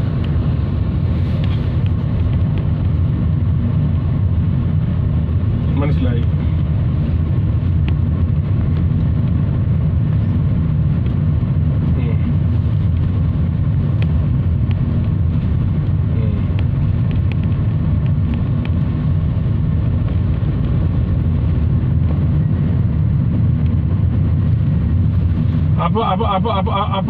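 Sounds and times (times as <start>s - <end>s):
car engine and tyre noise: 0.0s - 27.0s.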